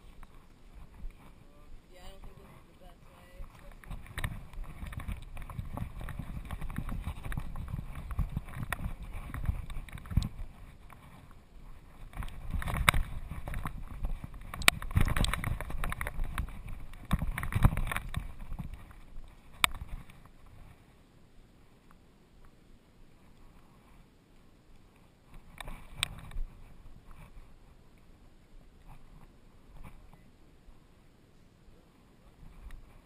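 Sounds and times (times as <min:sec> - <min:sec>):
camera handling rumble: 0:03.5 - 0:20.4.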